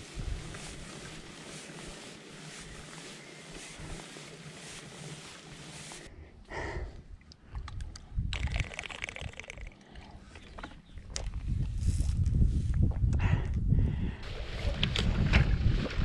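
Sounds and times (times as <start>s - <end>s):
bicycle rolling on pavement: 0.0s - 6.1s.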